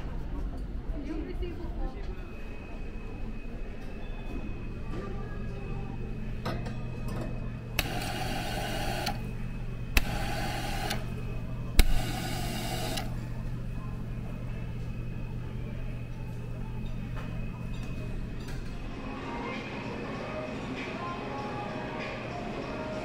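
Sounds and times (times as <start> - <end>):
steady low hum: 0.0 - 19.6
dispensing valve click: 7.8 - 9.2, 11.8 - 13.1.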